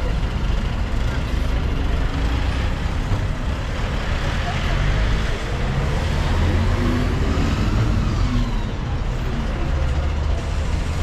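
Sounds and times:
bus engine rumbling: 0:00.0 - 0:11.0
cars passing: 0:00.0 - 0:11.0.

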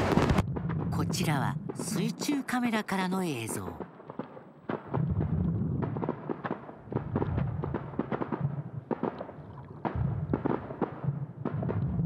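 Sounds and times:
low rumble: 0:00.0 - 0:01.8, 0:04.9 - 0:06.0
fireworks cracks and bangs: 0:00.0 - 0:02.6, 0:03.7 - 0:12.0.

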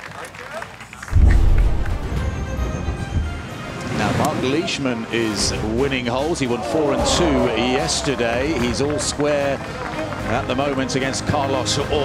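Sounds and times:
bass-heavy music sting: 0:01.2 - 0:03.5
heavy bass hit: 0:01.2 - 0:03.7.

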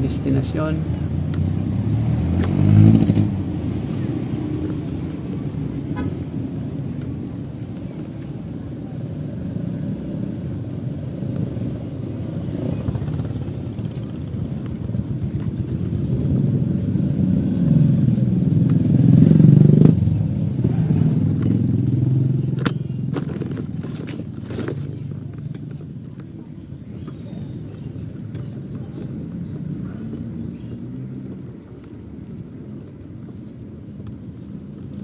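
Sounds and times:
street traffic: 0:00.0 - 0:35.0
tricycle ride rumble: 0:00.0 - 0:35.0.

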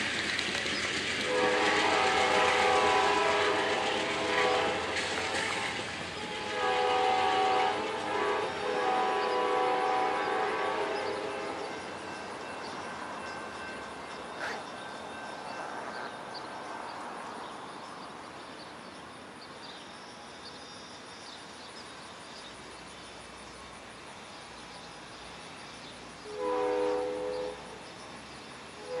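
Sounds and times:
train rumbling: 0:00.0 - 0:29.0
distant train horn chord: 0:01.2 - 0:16.2, 0:26.2 - 0:27.9, 0:28.8 - 0:29.0.

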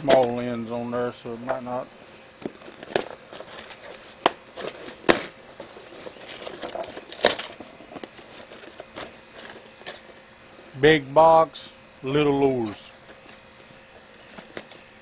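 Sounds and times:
crinkling: 0:02.4 - 0:10.3
packing tape tearing: 0:04.6 - 0:10.1.

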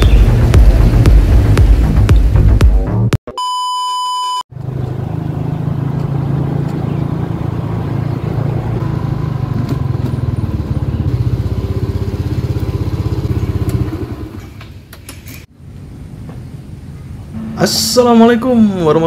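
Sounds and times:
motorcycle engine running: 0:00.0 - 0:02.8, 0:04.5 - 0:14.6
steady test tone: 0:17.3 - 0:19.0.

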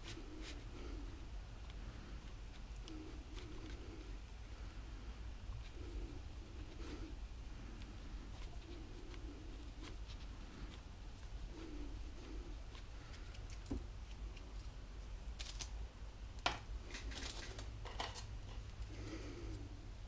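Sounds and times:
low steady hum: 0:00.0 - 0:20.0
objects handled on a workbench: 0:16.4 - 0:18.6.

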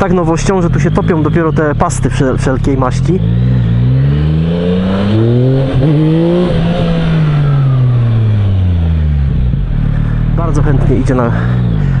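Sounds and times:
motorcycle engine accelerating: 0:00.0 - 0:12.0.

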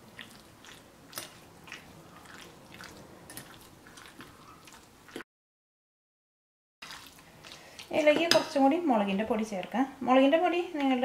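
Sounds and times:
fork stirring wet chicken: 0:00.0 - 0:05.2, 0:06.8 - 0:08.6.

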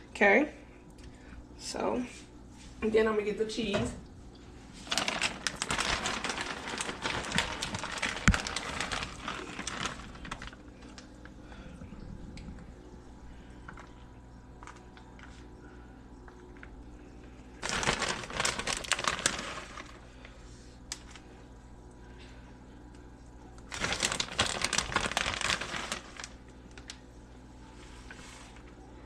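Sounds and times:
plastic bag crinkling: 0:04.8 - 0:11.4, 0:17.6 - 0:20.0, 0:23.7 - 0:27.0.

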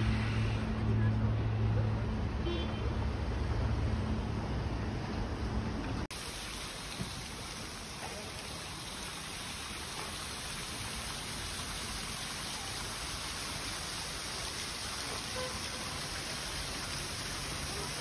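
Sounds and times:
water splashing in fountain: 0:05.7 - 0:18.0.

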